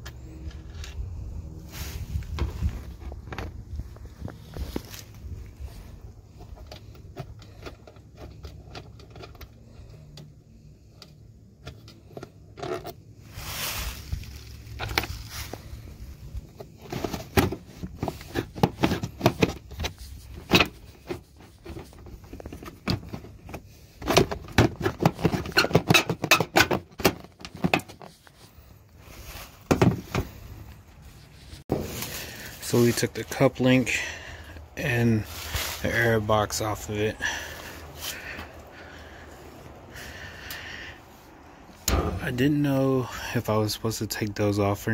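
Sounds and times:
plastic parts clattering: 16.6s - 28.5s.

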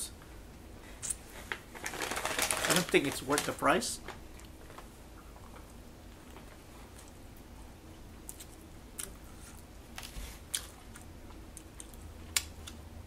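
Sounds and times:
person chewing food: 4.3s - 12.8s.

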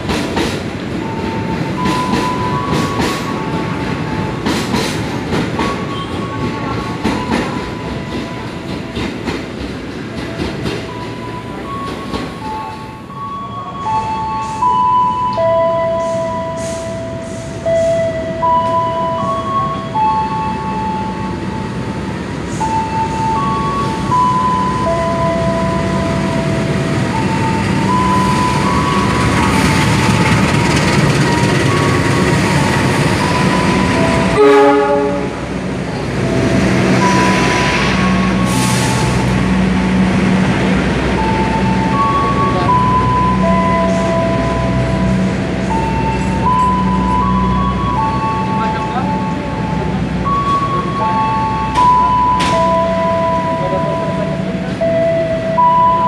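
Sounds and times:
locomotive engine droning: 0.0s - 56.0s
train wheels rumbling: 0.0s - 56.0s
train horn blast: 34.2s - 35.5s.

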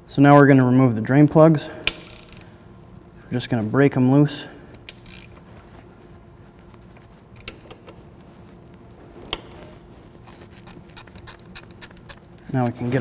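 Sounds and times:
wrench clicking: 1.8s - 2.5s, 4.8s - 5.4s, 7.4s - 8.0s, 10.3s - 12.2s.

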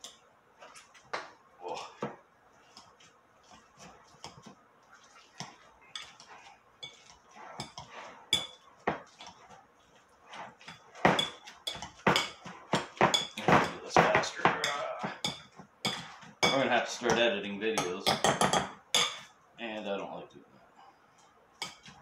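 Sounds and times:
soft squelches of mashing: 0.0s - 18.3s
fork clinking against glass bowl: 6.8s - 8.6s, 10.7s - 12.4s, 17.8s - 19.3s.

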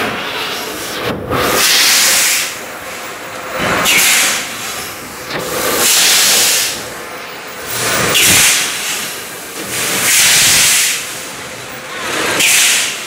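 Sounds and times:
machine mechanical noise: 0.0s - 13.0s
sealing machine hisses: 1.5s - 2.6s, 5.6s - 6.8s, 7.8s - 11.2s, 12.1s - 13.0s.

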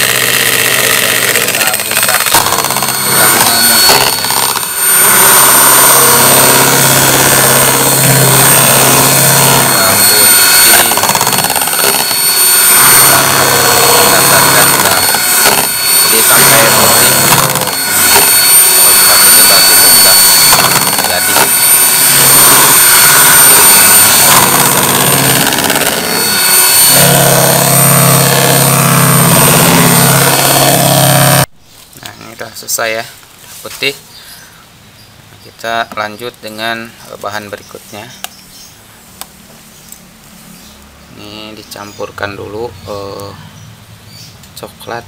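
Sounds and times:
electric hand mixer running: 0.0s - 31.5s.

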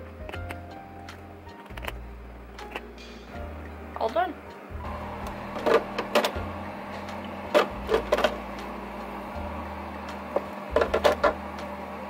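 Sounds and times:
sharp clicks and knocks: 0.0s - 2.0s, 10.1s - 11.7s
steady low hum: 0.0s - 12.0s.

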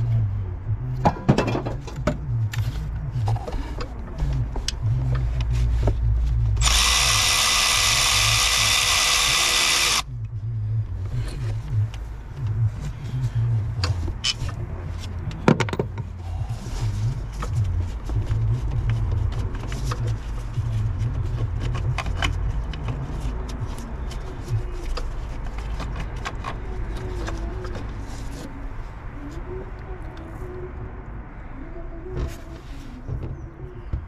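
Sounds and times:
handheld power tool running: 6.6s - 10.0s.

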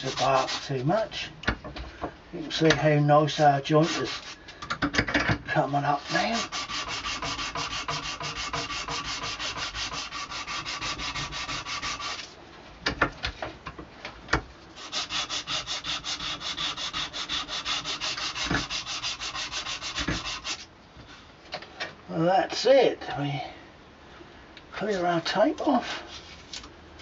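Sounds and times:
sandpaper rasping on wood: 0.0s - 0.9s, 3.3s - 4.4s, 5.5s - 12.3s, 14.8s - 20.7s.

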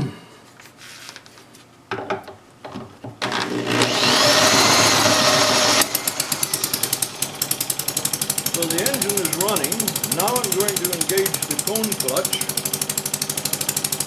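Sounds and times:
cordless drill whine: 3.2s - 12.8s
model engine idling: 5.8s - 14.0s.

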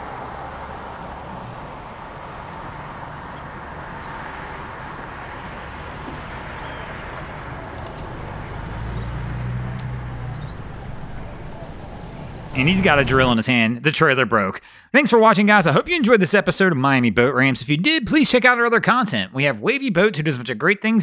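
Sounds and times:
low engine rumble: 0.0s - 13.5s
outdoor background noise: 0.0s - 14.6s.

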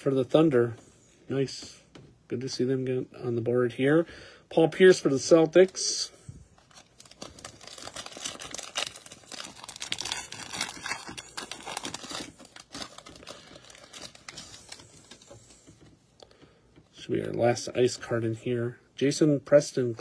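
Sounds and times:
plastic wrapper tearing and crinkling: 6.6s - 15.5s.

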